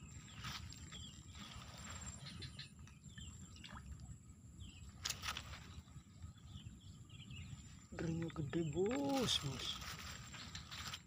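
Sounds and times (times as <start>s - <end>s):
faint bird chirps: 0.0s - 4.0s.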